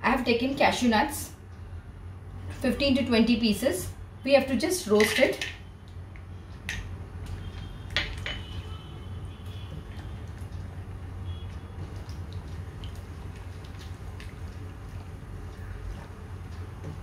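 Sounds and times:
steady low hum: 0:05.5 - 0:17.0.

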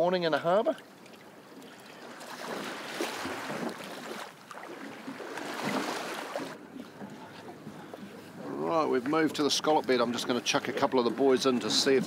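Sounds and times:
water sloshing and lapping: 0:00.0 - 0:12.0.

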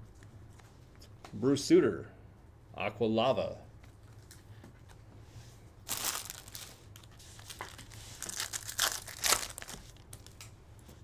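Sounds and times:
foil wrapper tearing and crinkling: 0:05.8 - 0:10.4.

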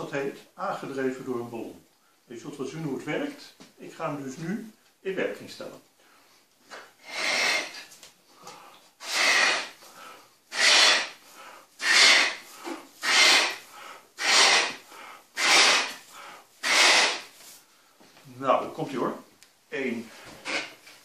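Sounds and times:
puffs of breath into balloon: 0:06.2 - 0:17.9
breaths drawn in: 0:06.8 - 0:18.0.

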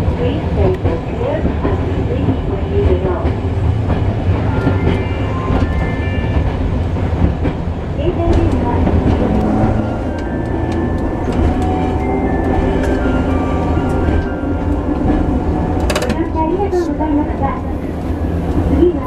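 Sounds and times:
streetcar wheels rumbling on rails: 0:00.0 - 0:19.0.

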